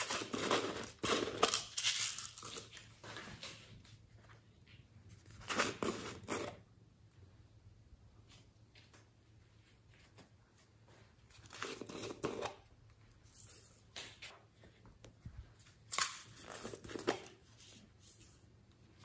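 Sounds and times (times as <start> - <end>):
plastic containers rustling and scraping: 0.0 - 3.8, 5.0 - 6.7, 11.0 - 14.3, 15.6 - 19.0.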